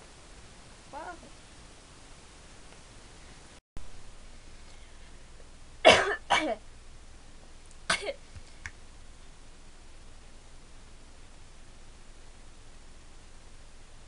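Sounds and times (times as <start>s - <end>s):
woman coughing: 5.8s - 6.6s, 7.9s - 8.2s.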